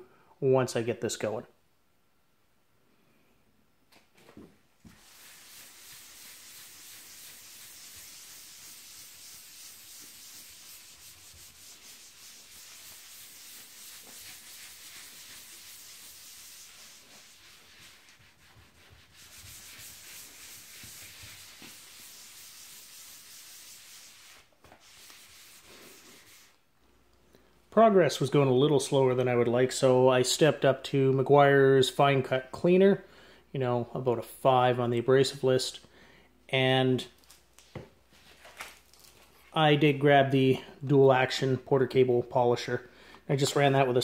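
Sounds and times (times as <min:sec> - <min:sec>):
polishing pad scrubbing hiss: 0:04.9 - 0:26.6.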